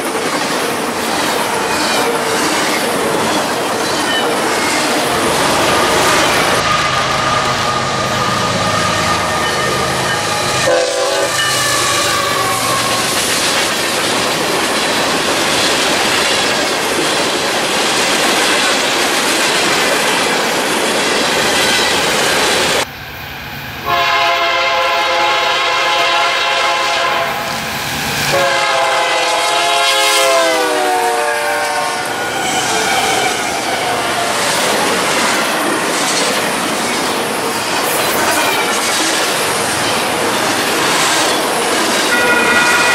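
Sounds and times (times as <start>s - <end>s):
locomotive air horn blasts: 6.6s - 13.1s, 23.8s - 27.5s, 28.3s - 32.1s, 42.1s - 42.9s
train wheels clattering: 32.3s - 42.9s.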